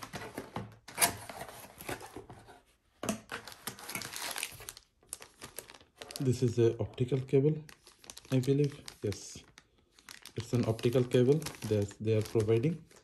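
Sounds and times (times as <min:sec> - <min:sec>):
plastic bag crinkling: 0:03.4 - 0:13.0.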